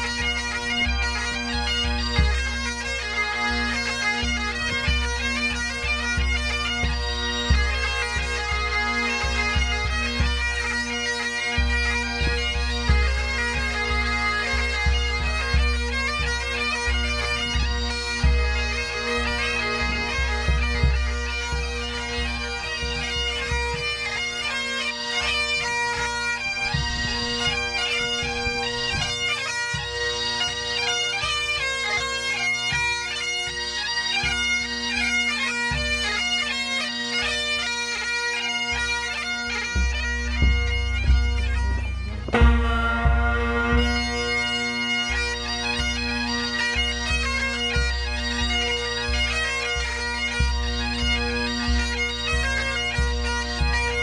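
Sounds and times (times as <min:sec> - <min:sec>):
bagpipes playing a tune: 0:00.0 - 0:54.0
bass drum beating: 0:39.8 - 0:44.3.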